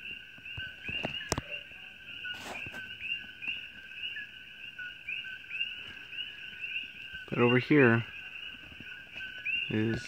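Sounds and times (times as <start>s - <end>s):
frogs calling two-note calls: 0.0s - 10.0s
brief rustle: 2.3s - 2.9s.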